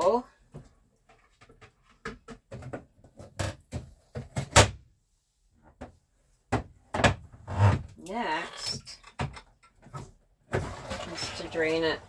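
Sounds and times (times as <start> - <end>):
plastic parts knocking: 1.1 - 4.6.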